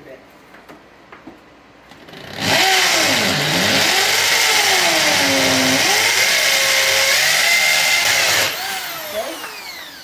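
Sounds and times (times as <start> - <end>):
drill drilling into concrete: 2.1 - 10.0.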